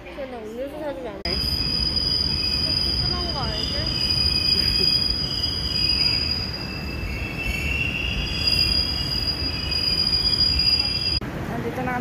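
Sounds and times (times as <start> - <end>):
subway train rumble: 0.0 - 12.0
wheel squeal: 1.4 - 11.2.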